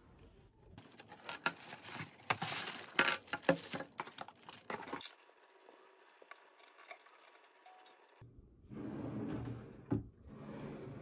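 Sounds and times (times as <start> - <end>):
faint handling: 0.8 - 5.4.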